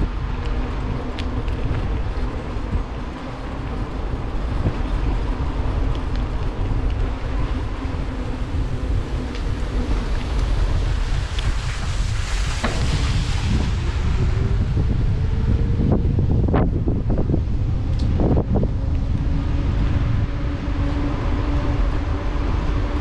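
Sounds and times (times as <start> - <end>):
bike clicks and rattles: 0.0 - 13.2
bike tyre rumble: 0.0 - 23.0
wind buffeting microphone: 0.0 - 23.0.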